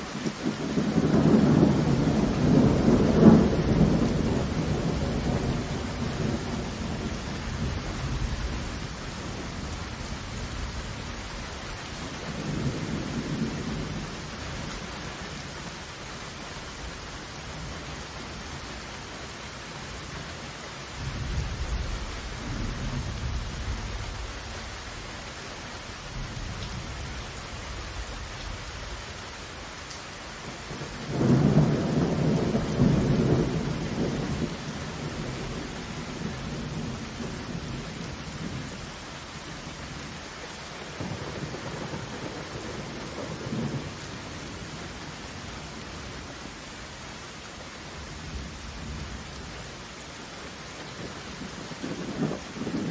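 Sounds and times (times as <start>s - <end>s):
heavy rain falling: 0.0s - 52.9s
rolling thunder: 0.4s - 14.4s, 30.7s - 39.0s, 51.0s - 52.9s.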